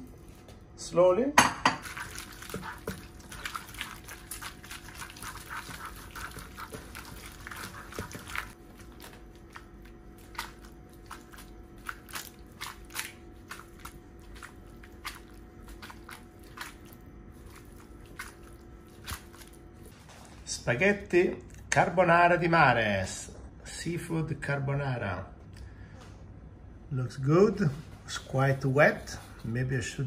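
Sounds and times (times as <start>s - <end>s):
faint steady hum: 0.0s - 30.0s
wooden spoon stirring pasta in pan: 1.8s - 19.6s
wet squelching and scraping: 1.8s - 20.5s.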